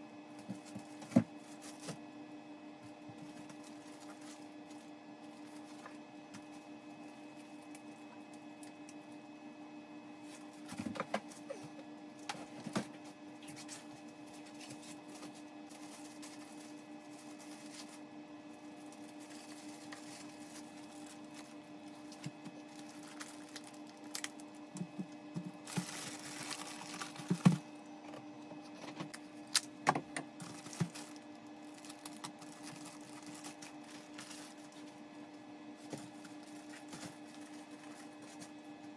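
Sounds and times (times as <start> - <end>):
plastic wrapping rustling: 3.2 - 6.0, 13.4 - 18.1, 18.7 - 27.7, 30.3 - 35.0, 35.8 - 38.6.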